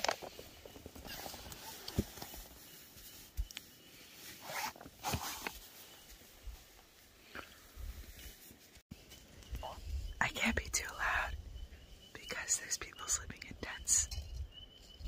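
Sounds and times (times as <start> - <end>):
camp gear rustling: 0.0 - 10.0.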